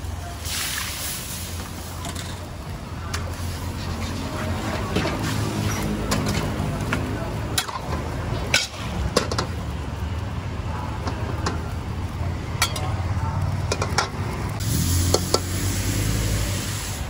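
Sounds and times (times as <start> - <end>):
loud sizzle: 0.0 - 17.0
metal spatula scraping wok: 3.4 - 6.7.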